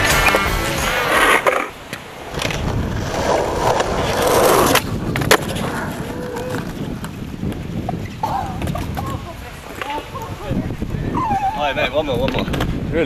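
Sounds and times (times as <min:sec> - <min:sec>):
skateboard clacking on ground: 0:00.0 - 0:10.3
skateboard wheels rolling on concrete: 0:00.0 - 0:13.0.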